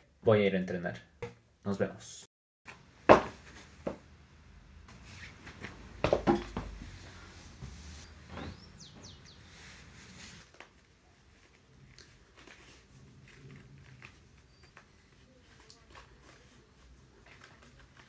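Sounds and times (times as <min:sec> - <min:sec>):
faint rustling and handling: 0:04.9 - 0:18.0.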